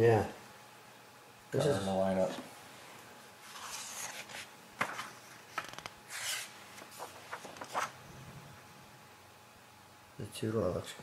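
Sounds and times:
paper pages rustling: 0:03.4 - 0:08.0.

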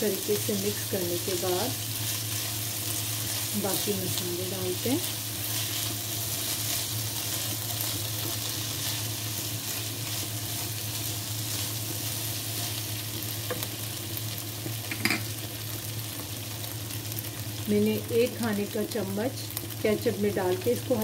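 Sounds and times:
food sizzling in a wok: 0:00.0 - 0:21.0
steady low hum: 0:00.0 - 0:21.0
spatula stirring and scraping: 0:01.8 - 0:13.6.

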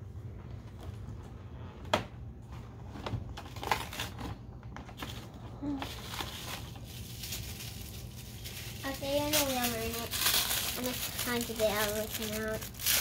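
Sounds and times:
toy packaging rustling: 0:02.8 - 0:13.0.

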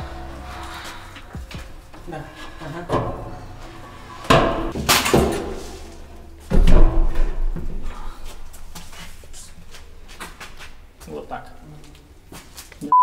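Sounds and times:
attic ladder knocking: 0:00.0 - 0:08.0.

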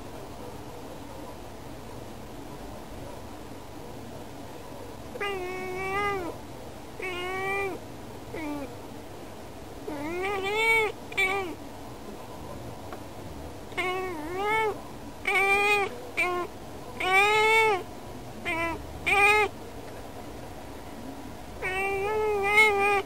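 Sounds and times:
cat meowing: 0:05.2 - 0:06.4, 0:07.0 - 0:08.7, 0:09.8 - 0:11.6, 0:13.7 - 0:19.5, 0:21.6 - 0:23.0.

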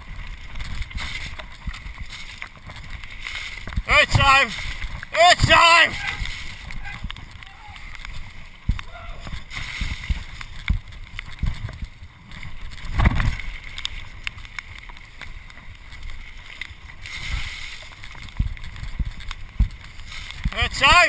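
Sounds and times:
wind buffeting microphone: 0:00.0 - 0:20.8
bike rattling: 0:00.0 - 0:21.0
tyres rumbling over gravel: 0:00.0 - 0:21.0.

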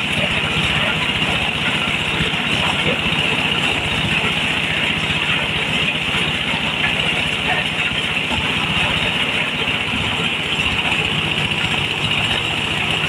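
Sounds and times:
diesel engine beating: 0:00.0 - 0:13.0.

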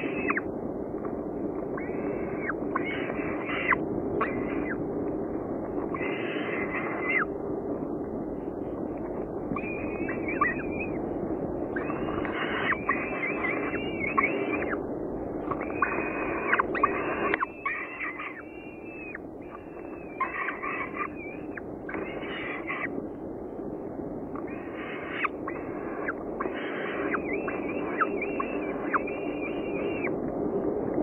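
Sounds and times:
falcon chicks screeching: 0:00.0 - 0:00.5, 0:01.8 - 0:04.8, 0:05.9 - 0:07.3, 0:09.5 - 0:11.0, 0:11.7 - 0:14.8, 0:15.4 - 0:23.0, 0:24.4 - 0:30.1
steady low hum: 0:00.0 - 0:31.0.

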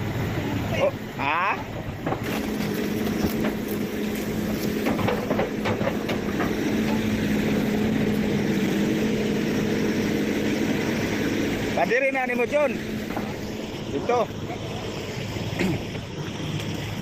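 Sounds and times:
excavator diesel engine: 0:00.0 - 0:17.0.

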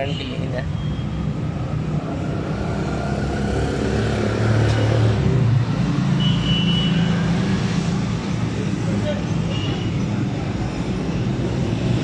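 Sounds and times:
low rumble of vehicle engines: 0:00.0 - 0:12.0.

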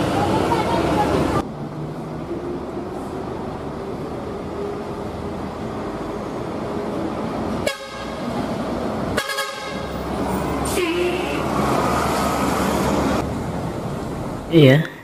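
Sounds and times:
bus engine and road noise: 0:00.0 - 0:15.0
bus horn blasts: 0:07.6 - 0:08.3, 0:09.1 - 0:10.0, 0:10.7 - 0:11.5.

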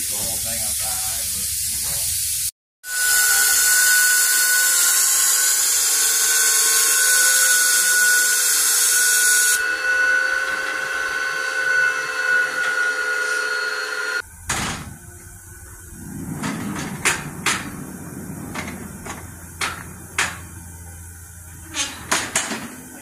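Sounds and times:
steam hissing: 0:00.0 - 0:23.0
steady high tone: 0:02.8 - 0:14.4.

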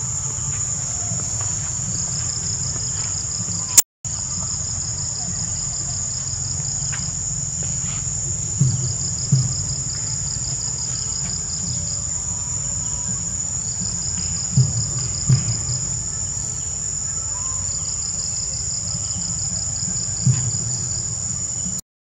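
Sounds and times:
insects buzzing: 0:00.0 - 0:21.8
low rumble: 0:00.0 - 0:21.8
rapid pulsed insect chirping: 0:00.0 - 0:21.8
dull thumps: 0:06.9 - 0:12.1, 0:13.8 - 0:16.8, 0:18.8 - 0:21.8.

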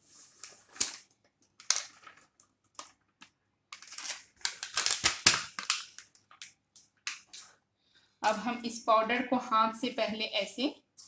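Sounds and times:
foil packet crinkling: 0:00.3 - 0:03.2, 0:03.8 - 0:06.5.

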